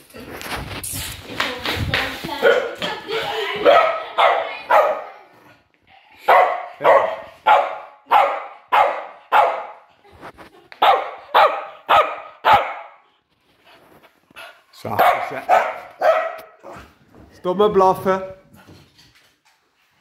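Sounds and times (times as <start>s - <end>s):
dog barking sharply: 6.3s - 9.8s, 10.8s - 13.0s, 14.9s - 16.6s.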